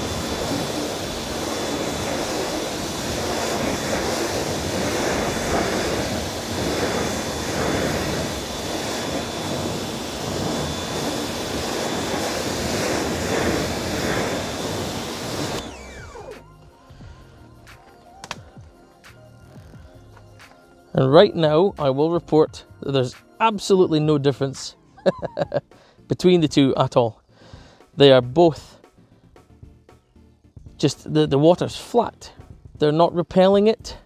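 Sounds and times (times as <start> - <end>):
water jet spraying on car: 0.0 - 15.6.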